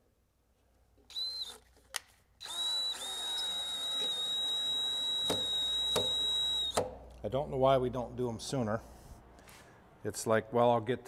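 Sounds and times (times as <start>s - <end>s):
power drill whining: 1.1s - 1.7s, 2.4s - 6.9s.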